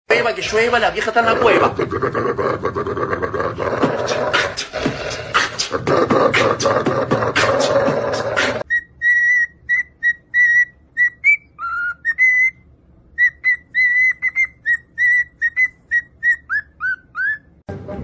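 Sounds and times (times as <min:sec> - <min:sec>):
cockatiel whistling: 0:08.6 - 0:17.5.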